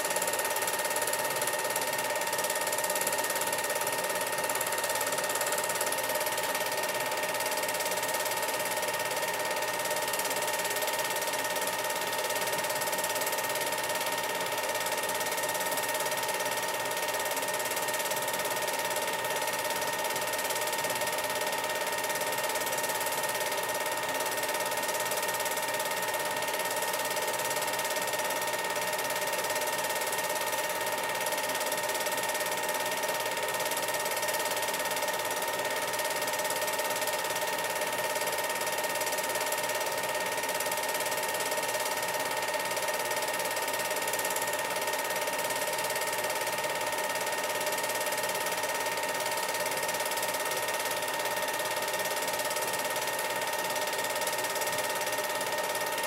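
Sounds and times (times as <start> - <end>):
film projector whirring: 0.0 - 56.0.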